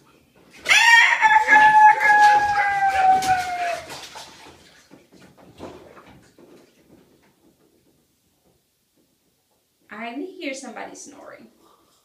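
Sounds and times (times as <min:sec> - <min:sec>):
rooster crowing: 0:00.7 - 0:03.9.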